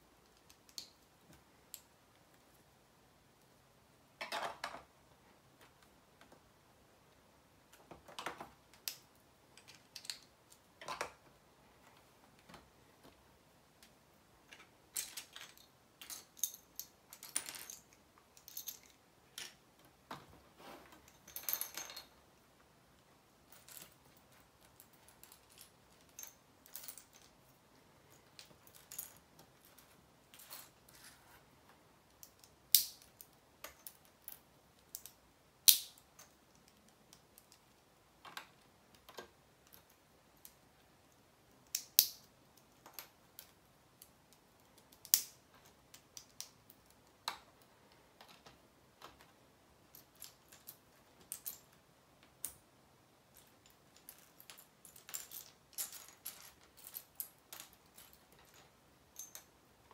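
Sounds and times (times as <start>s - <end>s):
plastic pieces clicking and snapping: 7.7s - 11.2s, 32.1s - 40.6s, 41.6s - 47.6s.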